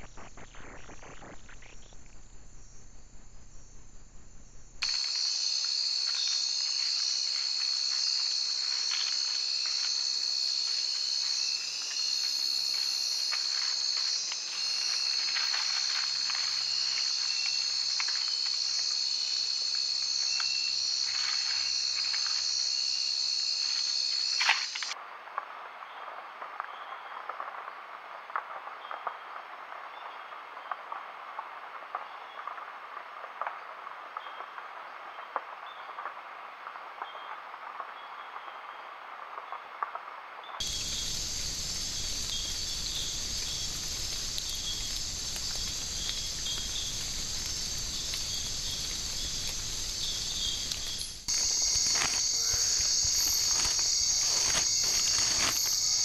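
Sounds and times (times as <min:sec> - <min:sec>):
insects ticking: 0:00.0 - 0:56.0
high-pitched insect trill: 0:04.8 - 0:25.0, 0:40.6 - 0:56.0.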